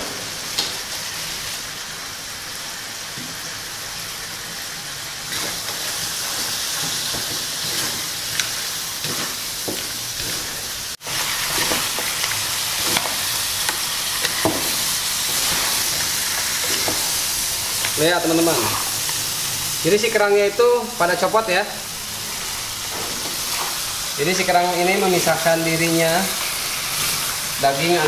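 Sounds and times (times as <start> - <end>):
mussels sizzling in a wok: 0.0 - 28.0.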